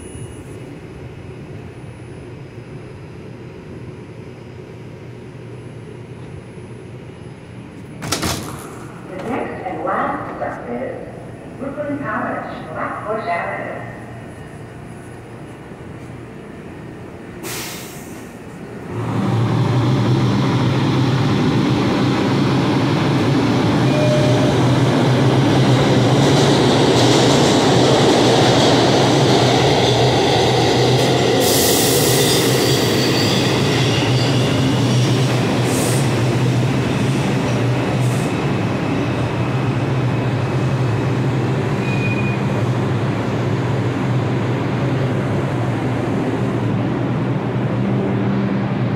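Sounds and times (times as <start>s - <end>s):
subway train humming: 0.0s - 48.9s
train brief hiss: 17.4s - 18.4s
short high squeals: 41.8s - 42.5s.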